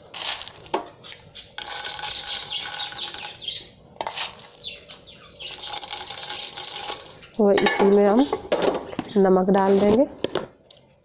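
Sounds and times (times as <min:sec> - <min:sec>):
kernels sizzling in hot oil: 0:01.4 - 0:04.5, 0:05.4 - 0:08.4.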